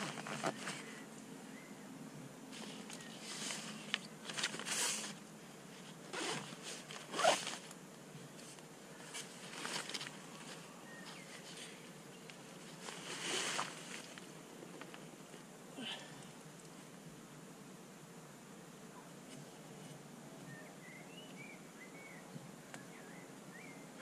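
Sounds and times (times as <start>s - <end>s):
zipper zipping: 0.0s - 0.8s, 6.1s - 7.6s
fabric rustling: 0.0s - 1.0s, 2.5s - 7.7s, 8.4s - 11.8s, 12.4s - 15.0s.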